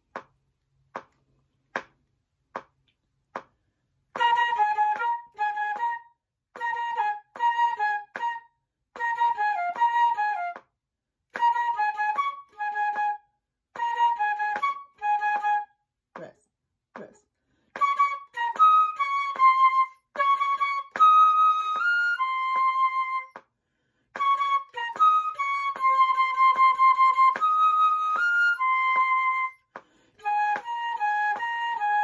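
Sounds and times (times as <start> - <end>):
flute playing slow melody: 4.1 - 10.7, 11.3 - 15.8, 17.8 - 23.4, 24.2 - 32.0
flutist breathing: 17.3 - 17.8, 23.5 - 24.2, 29.7 - 30.3.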